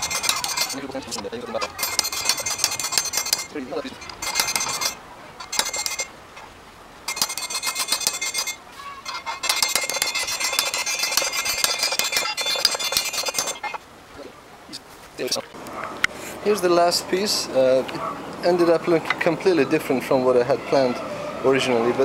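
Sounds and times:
hammer striking metal rebar: 0.0 - 6.1, 7.1 - 13.8.

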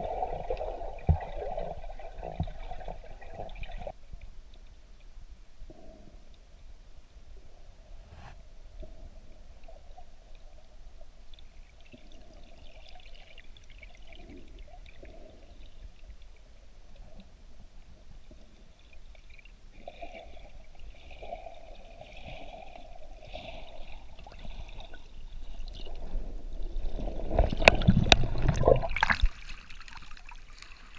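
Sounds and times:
water splashing: 19.8 - 30.9.

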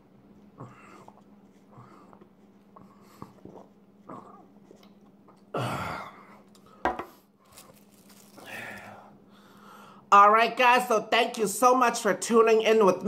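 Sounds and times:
soft gulps: 0.4 - 6.7
cup knocking on surface: 6.8 - 7.2
loud breath out: 8.4 - 10.1.

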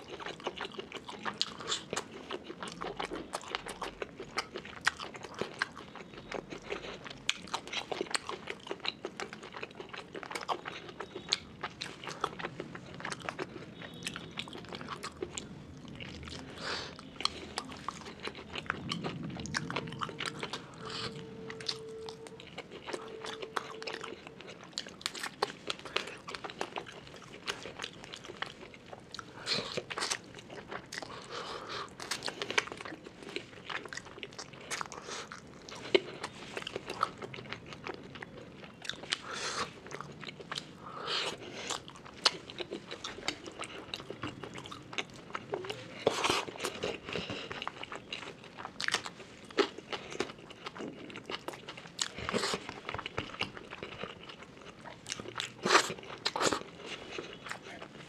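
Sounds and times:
person chewing with wet smacks: 0.0 - 58.0.

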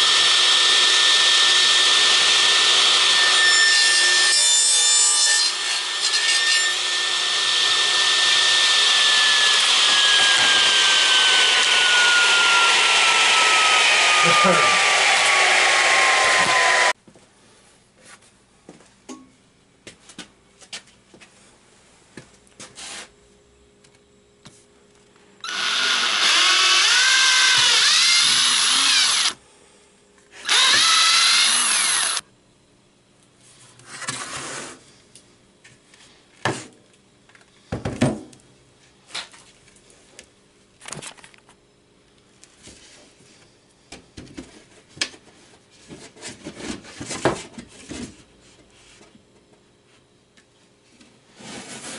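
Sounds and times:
cordless drill into plywood: 7.0 - 16.9, 25.4 - 29.4, 30.4 - 32.2.

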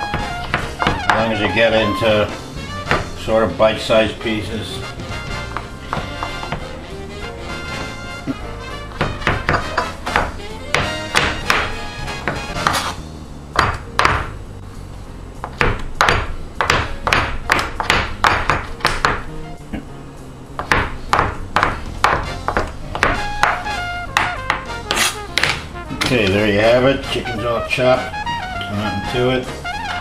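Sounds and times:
knife chopping on plastic board: 0.0 - 1.3, 2.8 - 3.2, 5.4 - 6.7, 7.8 - 12.9, 15.4 - 19.3, 20.6 - 25.7
background music: 0.0 - 30.0.

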